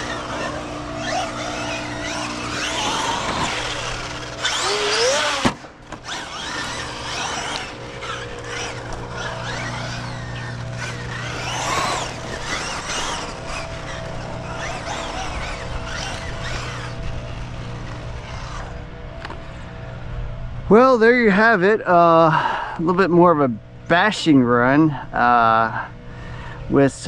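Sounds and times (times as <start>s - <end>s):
electric motor whining: 0.0s - 20.7s.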